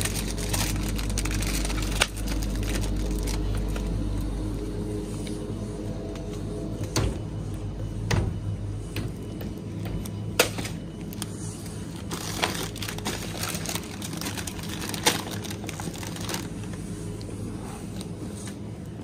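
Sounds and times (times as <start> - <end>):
plastic packaging crinkling: 0.0 - 4.2, 10.7 - 16.8
low hum: 0.0 - 19.0.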